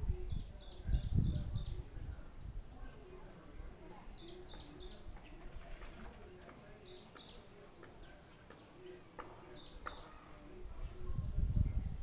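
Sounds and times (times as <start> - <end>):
bird chirping: 4.1 - 5.5, 6.6 - 10.4.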